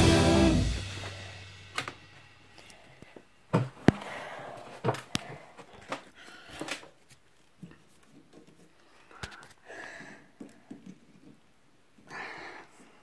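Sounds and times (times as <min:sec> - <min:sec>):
low music: 0:00.0 - 0:02.6.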